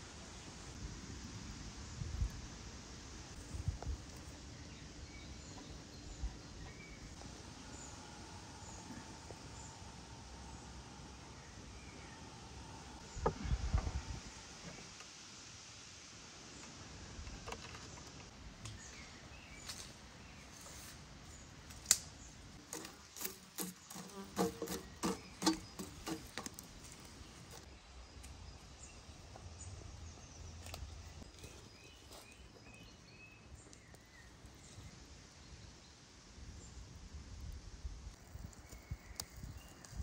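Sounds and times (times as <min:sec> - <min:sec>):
faint outdoor background: 0:00.0 - 0:40.0
embers poked with a stick: 0:21.6 - 0:28.4.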